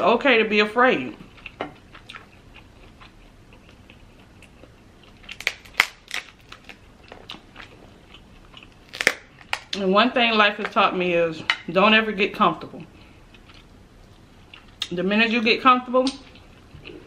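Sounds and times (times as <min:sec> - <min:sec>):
crab shells cracking: 0:04.4 - 0:07.7, 0:08.6 - 0:09.8.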